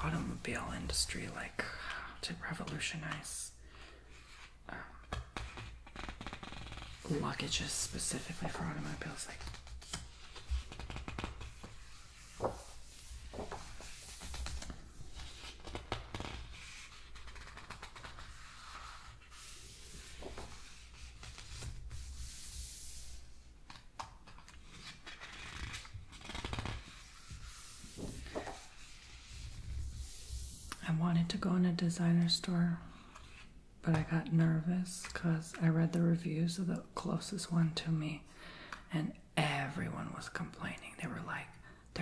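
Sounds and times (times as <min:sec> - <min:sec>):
book pages turning: 0:04.0 - 0:30.8.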